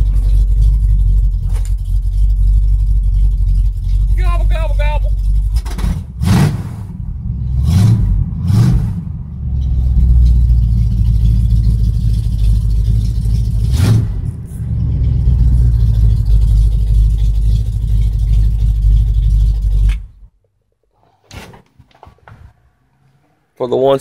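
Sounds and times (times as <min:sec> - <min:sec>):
truck engine revving: 0:00.0 - 0:20.3.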